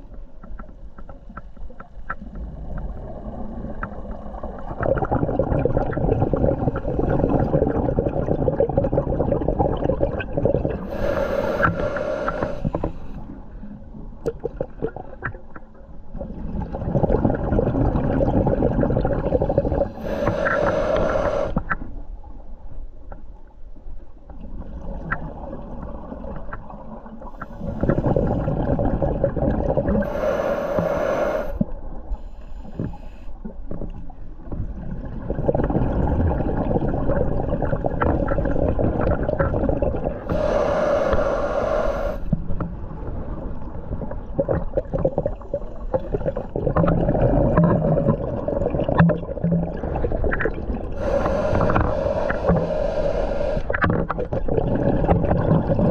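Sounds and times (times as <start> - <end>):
regulator inhalation: 10.8 - 13.2, 19.8 - 21.6, 29.9 - 31.6, 40.2 - 42.4, 51.0 - 53.8
bubbly diver exhalations: 44.3 - 55.9.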